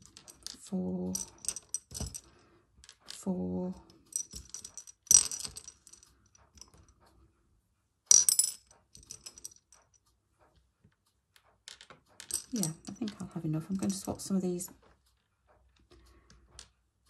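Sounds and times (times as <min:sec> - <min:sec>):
beads clicking on china saucer: 0:11.4 - 0:14.4.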